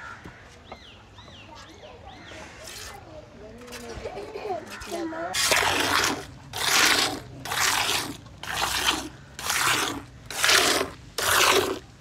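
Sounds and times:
milk squirting into metal pail: 0:05.4 - 0:12.0.

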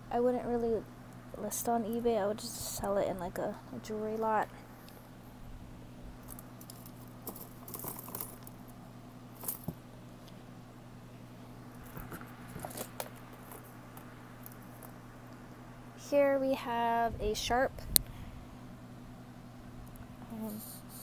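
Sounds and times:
jewelry clicking and rattling: 0:06.2 - 0:08.5, 0:09.4 - 0:09.8.

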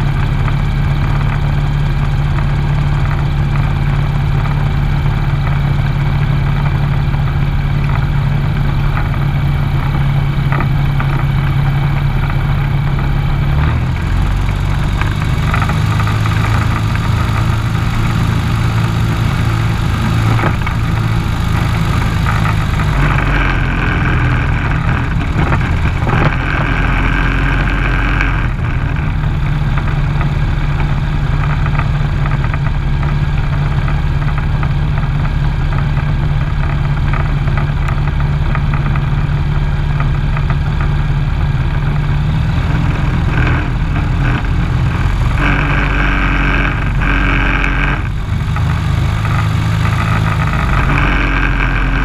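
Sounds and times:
high engine whine: 0:00.0 - 0:52.0
lawn mower engine humming: 0:00.0 - 0:52.0.

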